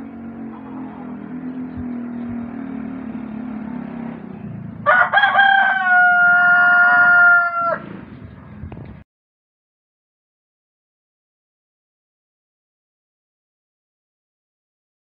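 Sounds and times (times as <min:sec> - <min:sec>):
steady low hum: 0:00.0 - 0:04.9
rooster crowing: 0:04.8 - 0:08.0.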